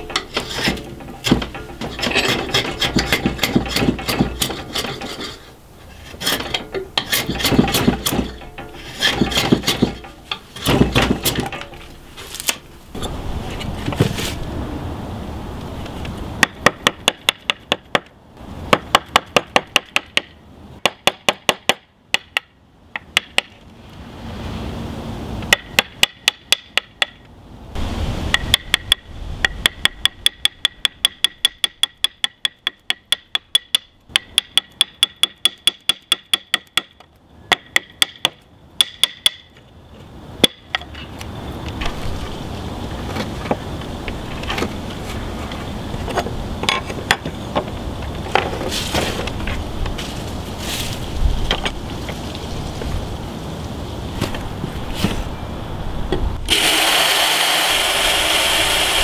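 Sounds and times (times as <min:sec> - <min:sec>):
mallet tapping metal gouge: 0:25.5 - 0:27.2, 0:28.3 - 0:39.5
chisel paring wood: 0:28.4 - 0:39.5.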